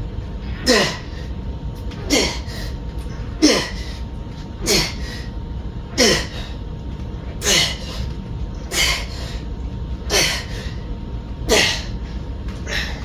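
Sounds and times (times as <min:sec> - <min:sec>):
steady low hum: 0:00.0 - 0:13.0
man breathing forcefully: 0:02.0 - 0:05.4, 0:07.4 - 0:13.0.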